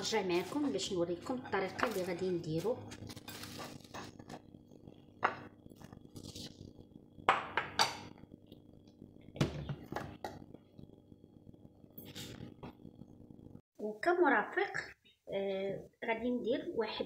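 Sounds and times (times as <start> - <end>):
dishes clinking on countertop: 7.3 - 8.0.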